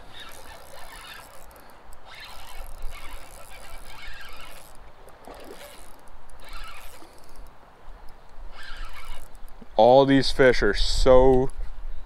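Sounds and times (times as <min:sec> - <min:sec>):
fishing reel being cranked: 0:00.0 - 0:09.6.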